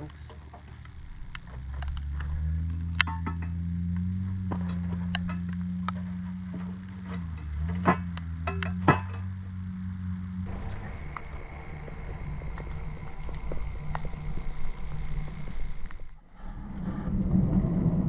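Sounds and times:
metal clinks and knocks: 0.0s - 9.5s
low hum: 0.0s - 18.0s.

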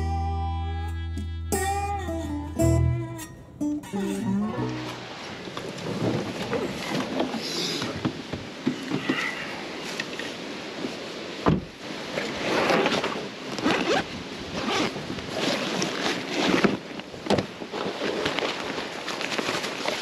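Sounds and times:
nylon bag rustling and scraping: 12.2s - 20.0s.

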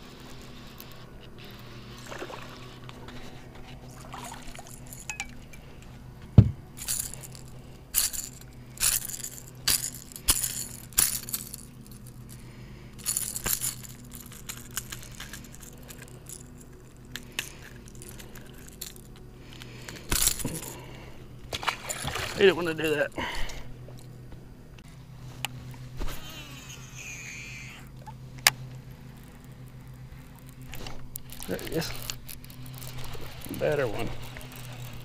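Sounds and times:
fishing hooks rattling: 3.9s - 5.9s, 6.8s - 24.1s, 28.7s - 35.0s
loud thump: 6.4s - 6.6s.

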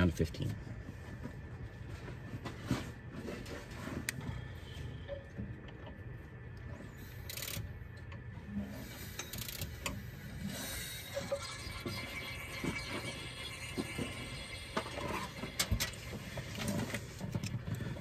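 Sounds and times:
ratchet clicking: 7.2s - 7.6s, 9.1s - 10.0s.

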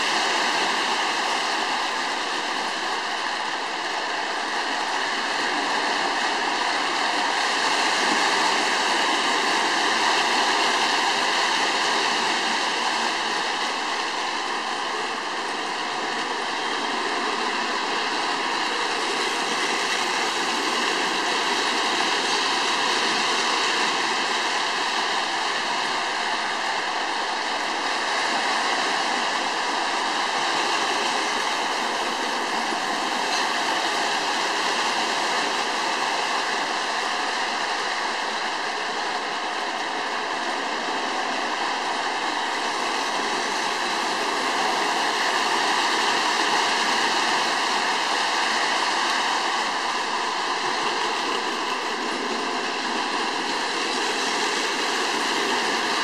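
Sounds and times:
model train whirring on track: 0.0s - 56.0s.

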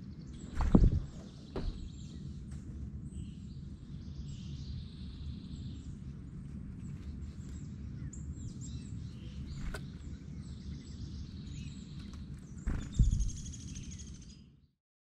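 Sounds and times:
low outdoor rumble: 0.0s - 14.2s
wild birds chirping: 0.0s - 14.7s
sharp thump: 0.6s - 2.0s.

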